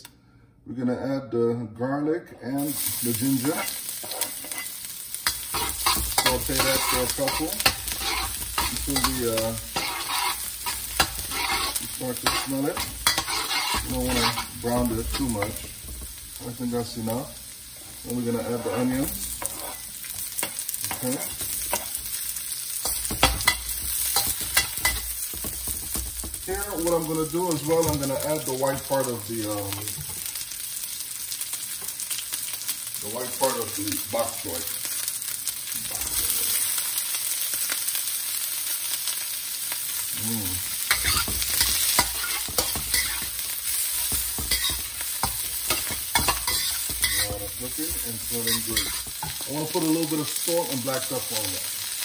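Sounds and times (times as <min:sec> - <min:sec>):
vegetables sizzling in hot oil: 0:02.6 - 0:52.0
metal spatula scraping a wok: 0:03.4 - 0:15.6, 0:17.9 - 0:22.2, 0:40.8 - 0:50.2.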